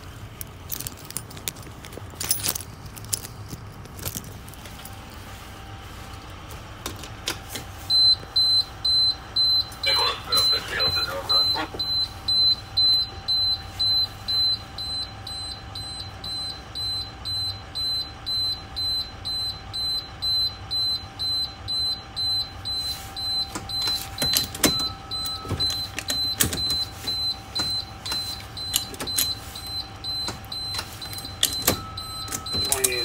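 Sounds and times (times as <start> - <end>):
high-pitched warning buzzer beeping: 7.8 - 33.0.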